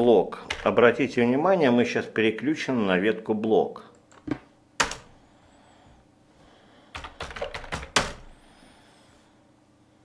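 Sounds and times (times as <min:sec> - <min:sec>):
computer keyboard keystrokes: 0:04.0 - 0:05.1, 0:06.9 - 0:08.3.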